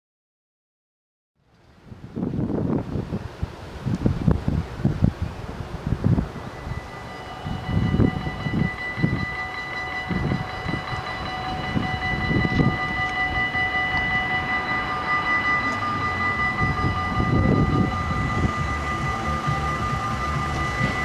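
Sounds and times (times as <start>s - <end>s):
wind rumbling on microphone: 1.4s - 21.0s
level crossing warning bells: 6.2s - 21.0s.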